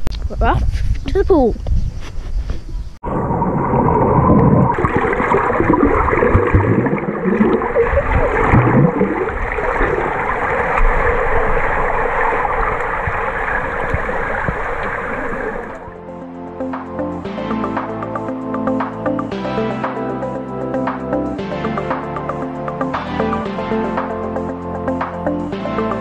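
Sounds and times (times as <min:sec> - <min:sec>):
muffled underwater water rushing: 0:03.0 - 0:16.0.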